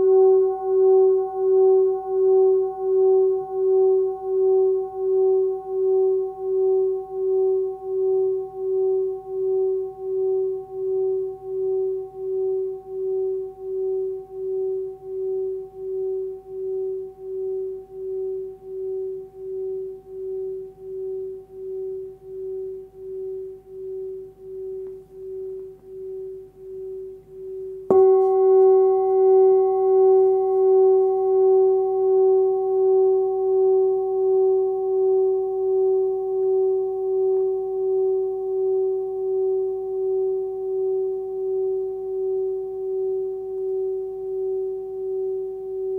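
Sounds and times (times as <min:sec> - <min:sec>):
singing bowl ringing: 0:00.0 - 0:45.9
singing bowl struck: 0:27.9 - 0:39.6.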